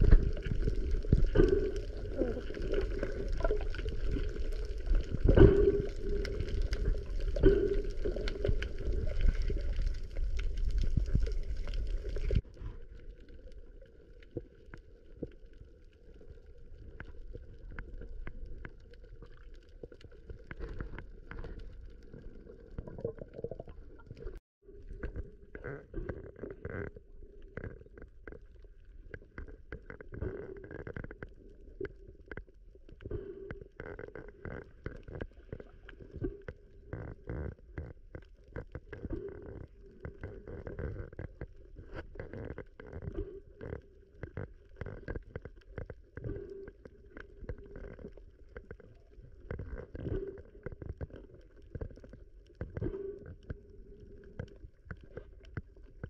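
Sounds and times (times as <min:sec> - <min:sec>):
muffled water sloshing: 0:00.0 - 0:26.0
sharp clicks and crackles: 0:00.0 - 0:56.0.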